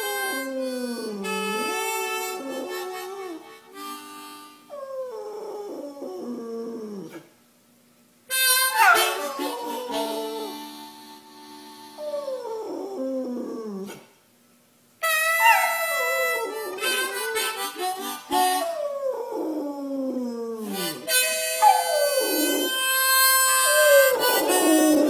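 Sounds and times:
harmonica: 0.0s - 5.0s, 8.3s - 12.4s, 15.0s - 19.1s, 20.6s - 25.0s
dog howling: 8.7s - 10.6s, 15.1s - 17.5s, 18.6s - 25.0s.

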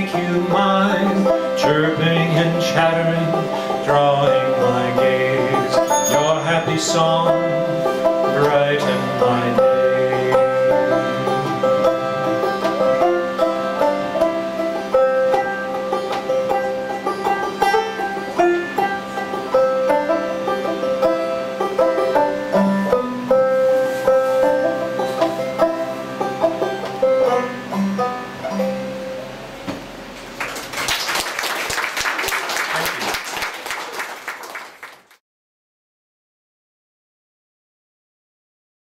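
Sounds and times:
harmonium drone: 0.0s - 29.3s
banjo picking: 0.0s - 29.4s
people clapping: 30.3s - 35.2s.

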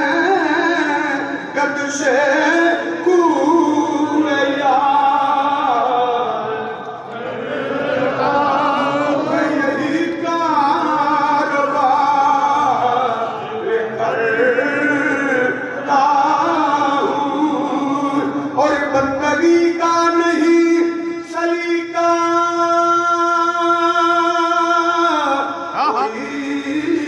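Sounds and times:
man chanting verse: 7.8s - 27.0s.

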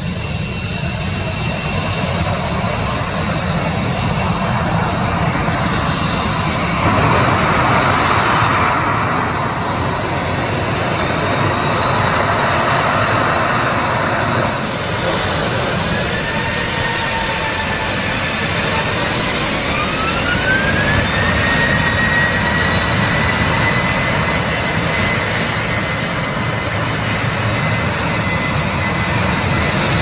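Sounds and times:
jet engines at taxi thrust: 0.0s - 30.0s.

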